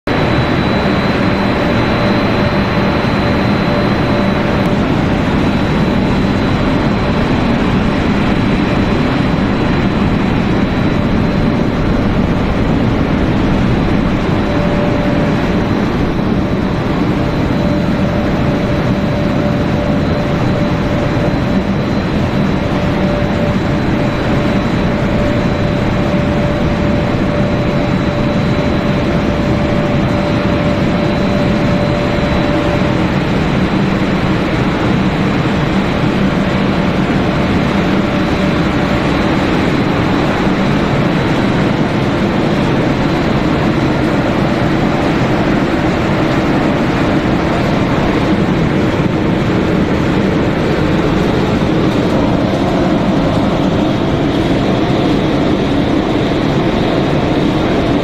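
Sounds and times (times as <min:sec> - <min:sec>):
high machine whine: 0:00.0 - 0:58.0
industrial machine noise: 0:00.0 - 0:58.0
mid-pitched machine hum: 0:00.0 - 0:58.0.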